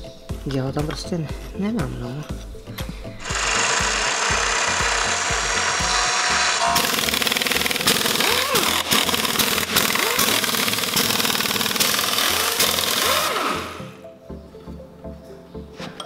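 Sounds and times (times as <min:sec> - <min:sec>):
impact wrench hammering: 0:03.2 - 0:13.9.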